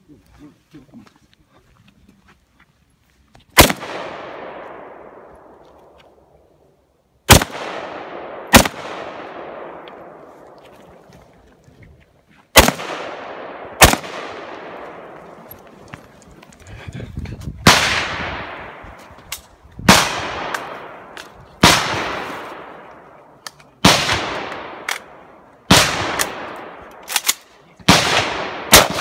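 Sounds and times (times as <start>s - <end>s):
rifle shots with long echo: 3.6s - 11.0s, 12.5s - 15.8s, 17.6s - 29.0s.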